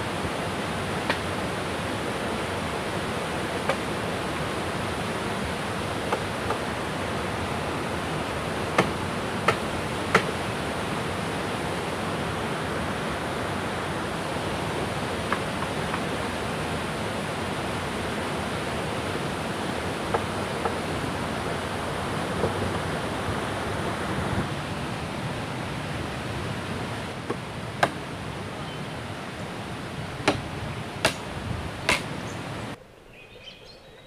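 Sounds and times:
river rushing over rocks: 0.0s - 32.8s
blade chopping wood: 27.3s - 28.0s, 30.2s - 31.3s, 31.9s - 32.1s.

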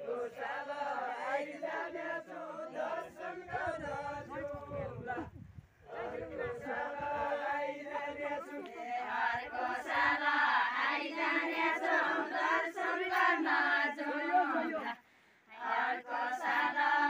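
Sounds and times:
women singing unaccompanied: 0.0s - 17.0s.

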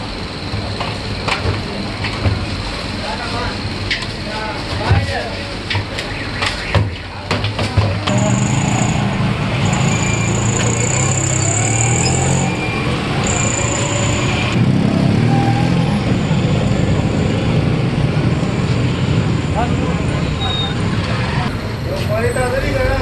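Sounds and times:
street traffic noise: 0.0s - 23.0s
engine running: 8.0s - 21.6s.

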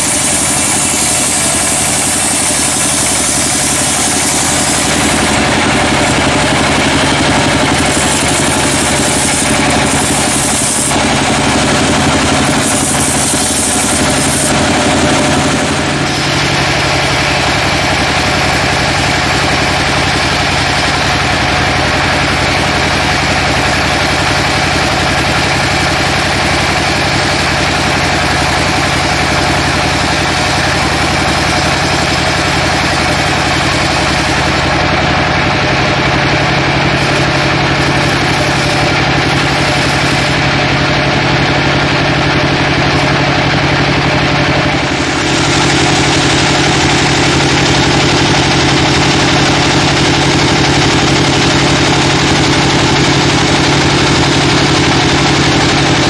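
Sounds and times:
band sawmill cutting a log: 0.0s - 56.0s
saw blade whine: 0.0s - 56.0s.

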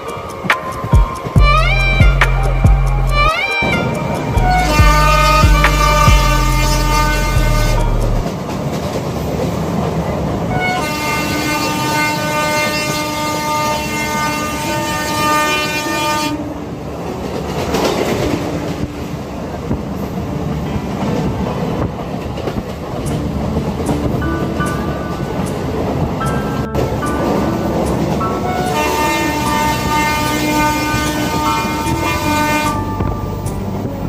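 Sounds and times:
moving train rumble: 0.0s - 34.0s
train horn blasts: 2.8s - 8.3s, 10.5s - 16.6s, 28.4s - 33.4s.

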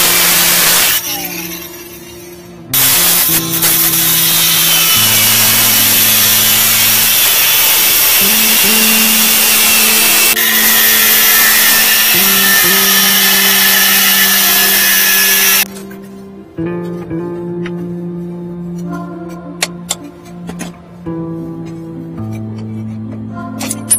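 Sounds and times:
angle grinder running: 0.0s - 1.6s, 2.7s - 15.7s.

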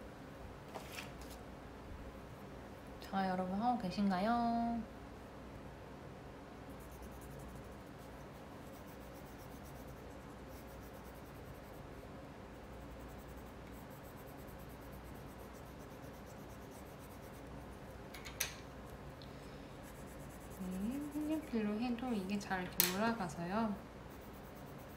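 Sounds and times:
pencil scratching on paper: 6.8s - 11.8s, 12.6s - 17.9s, 19.8s - 22.4s, 24.1s - 24.9s.

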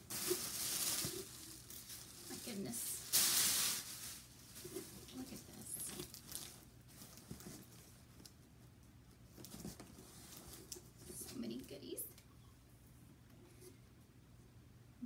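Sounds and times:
tissue paper rustling: 0.0s - 8.4s, 9.3s - 11.7s.

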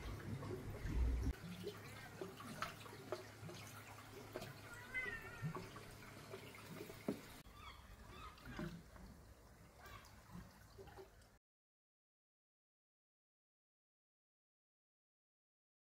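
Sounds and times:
water dripping: 0.0s - 11.4s
cat meowing faintly: 4.6s - 5.7s.

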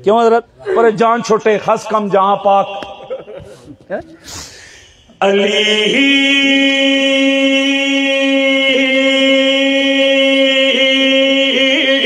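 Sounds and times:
man singing long note: 5.2s - 12.0s.

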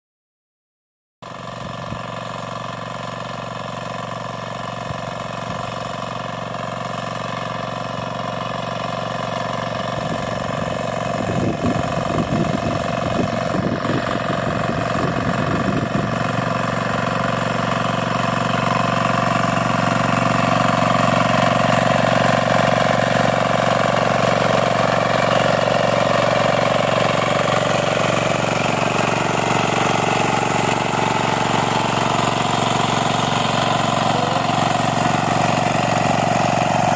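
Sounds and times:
diesel engine running under load: 1.2s - 36.9s.

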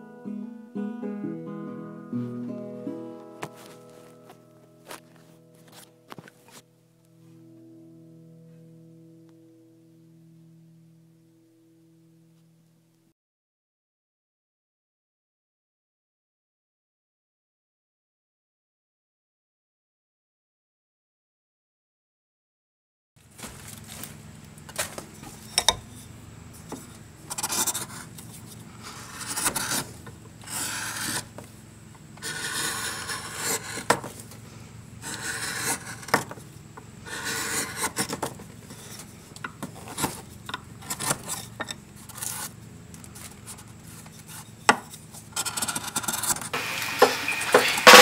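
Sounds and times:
gouge scraping wood: 24.7s - 48.0s.

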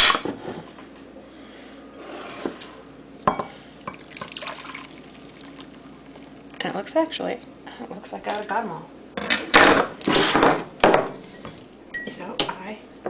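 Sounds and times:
liquid pouring into a bowl: 3.4s - 6.4s.

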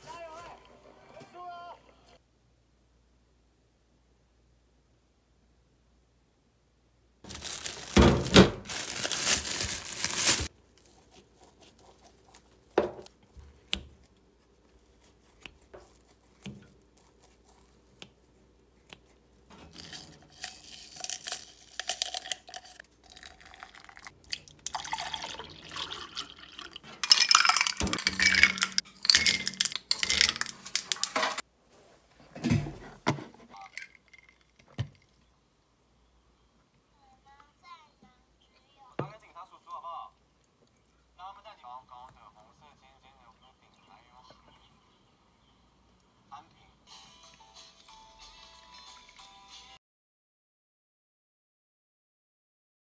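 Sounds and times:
plastic bag crinkling: 7.3s - 12.7s, 19.7s - 24.1s, 24.8s - 31.4s
liquid pouring: 19.7s - 31.4s, 33.5s - 35.2s
ice clinking in glass: 19.8s - 24.1s, 24.7s - 31.4s.

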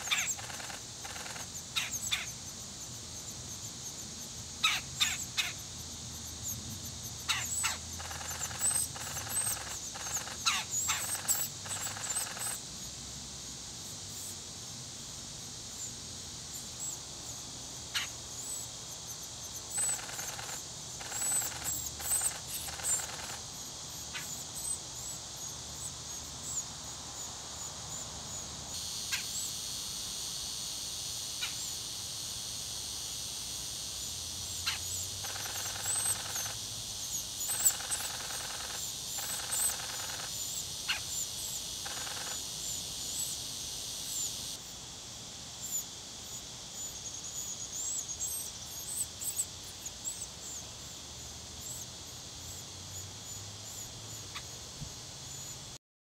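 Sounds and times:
nestlings squeaky begging calls: 0.0s - 2.4s, 4.6s - 5.6s, 7.2s - 12.6s, 17.9s - 18.6s, 19.7s - 23.4s, 34.6s - 42.4s
steady high hiss: 0.0s - 55.8s.

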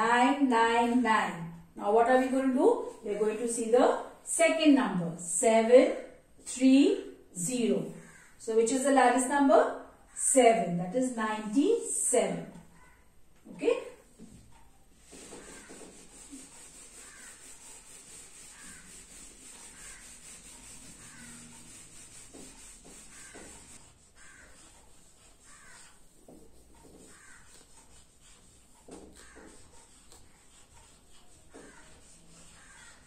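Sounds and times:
marker pen strokes on board: 14.1s - 33.0s
duster rubbing on whiteboard: 14.2s - 33.0s.

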